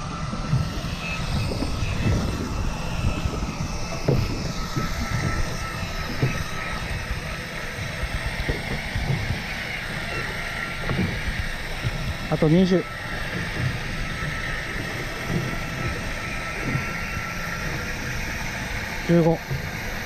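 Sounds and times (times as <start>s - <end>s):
boat engine rumble: 0.0s - 20.0s
electric fishing reel motor whine: 0.0s - 20.0s
wind buffeting microphone: 0.0s - 20.0s.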